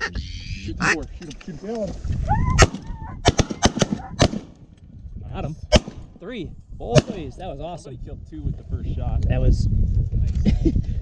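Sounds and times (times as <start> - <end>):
shotgun shots: 2.6 - 4.6, 5.7 - 6.2, 7.0 - 7.2.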